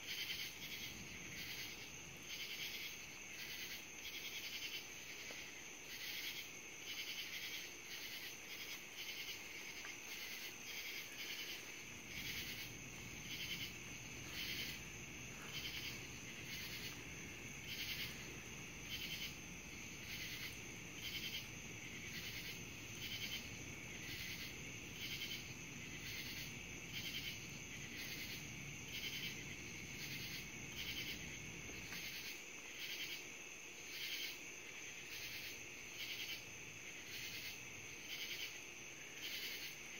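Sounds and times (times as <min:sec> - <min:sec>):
night insects pulsing calls: 0:00.0 - 0:39.9.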